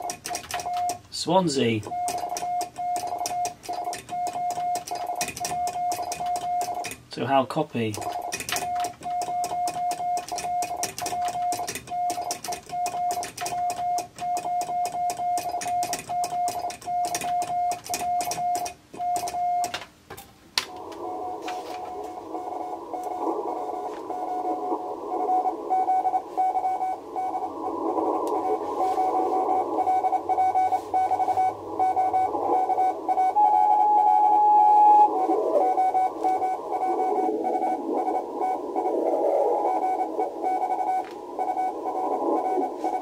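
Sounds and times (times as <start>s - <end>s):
morse code beeping: 0.0s - 7.0s, 7.8s - 19.8s, 20.7s - 43.0s
radio band hiss: 1.1s - 1.9s, 7.1s - 8.1s, 20.6s - 43.0s.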